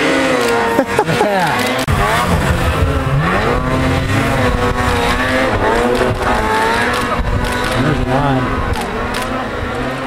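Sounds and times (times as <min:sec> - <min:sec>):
snowmobile engine revving: 0:00.0 - 0:10.0.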